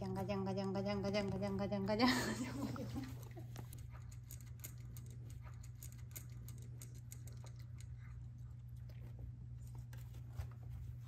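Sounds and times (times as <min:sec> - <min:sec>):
steady low hum: 0:00.0 - 0:11.0
puppy crunching dry kibble: 0:03.2 - 0:10.3.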